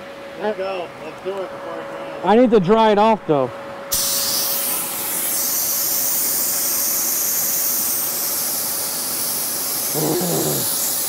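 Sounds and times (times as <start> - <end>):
faint blower hum: 0.0 - 11.0
paint spray gun hissing: 3.9 - 11.0.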